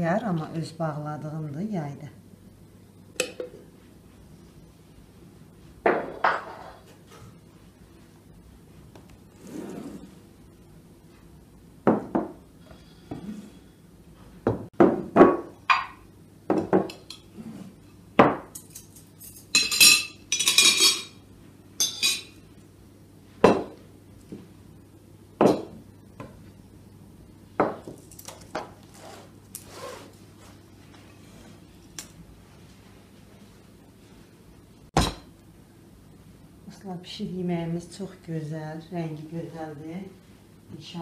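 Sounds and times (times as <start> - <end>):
plates and cutlery clinking: 18.5 - 21.2, 21.8 - 22.4.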